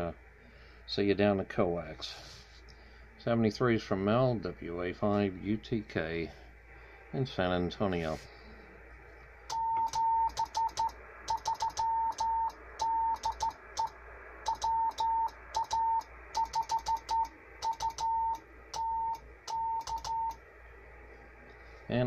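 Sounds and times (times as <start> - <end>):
morse code tone: 9.5 - 13.9, 14.5 - 20.4.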